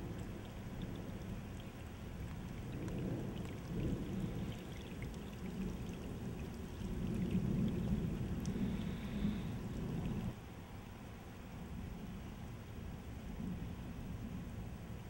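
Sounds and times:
heavy rain on pavement: 0:00.0 - 0:10.4.

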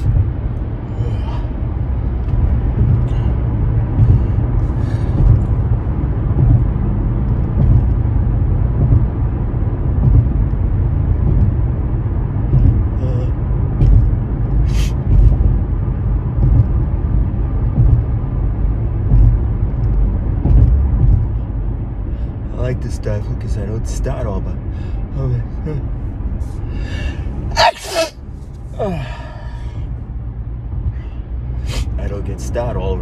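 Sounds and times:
vehicle cabin rumble: 0:00.0 - 0:33.0
stifled sneeze: 0:27.5 - 0:28.2, 0:31.7 - 0:32.0.

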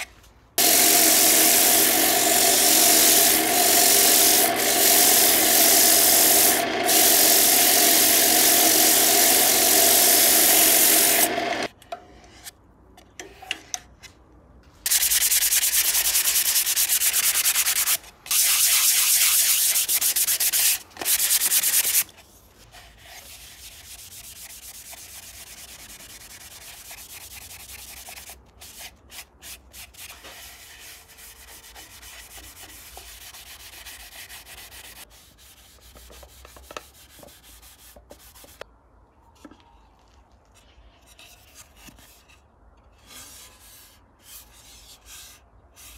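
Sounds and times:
lathe hum: 0:00.6 - 0:11.7
sandpaper hissing on spinning wood: 0:00.6 - 0:11.7, 0:14.9 - 0:22.1.

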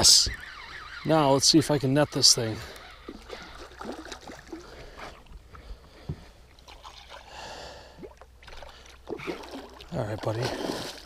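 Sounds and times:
water splashing against boat: 0:01.0 - 0:07.4, 0:08.0 - 0:11.0.

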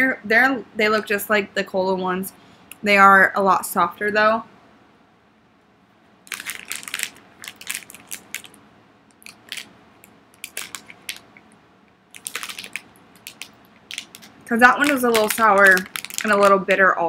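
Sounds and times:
plastic bag crinkling: 0:06.2 - 0:11.5, 0:12.1 - 0:16.8.

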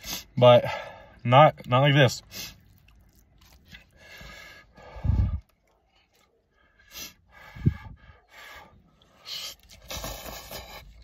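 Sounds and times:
man sniffling: 0:06.8 - 0:11.0
nose snorts: 0:09.8 - 0:11.0.

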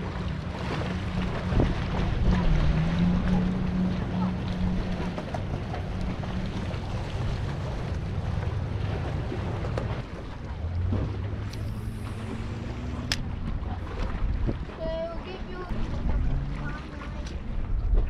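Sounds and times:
boat engine running: 0:00.0 - 0:18.0
water noise: 0:00.0 - 0:18.0
wind: 0:00.0 - 0:18.0.

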